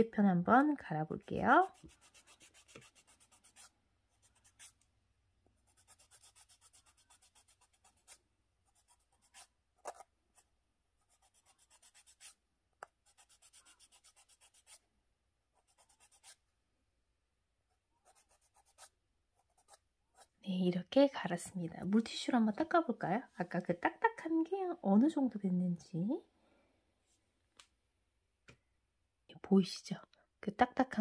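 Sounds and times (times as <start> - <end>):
nail file rasping on fingernail: 5.7 - 8.2.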